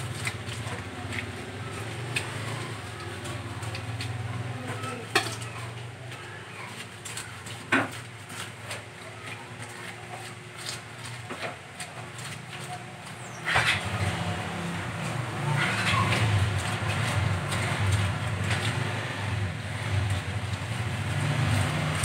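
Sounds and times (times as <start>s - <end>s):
cleaver scraping fish scales: 6.4s - 22.0s.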